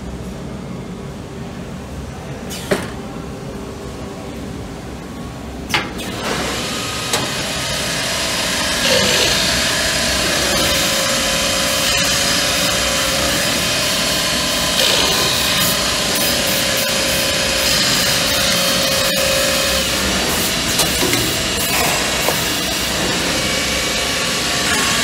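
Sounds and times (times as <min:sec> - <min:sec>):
motor whine: 0:06.0 - 0:25.0
rasping cutting noise: 0:07.0 - 0:25.0.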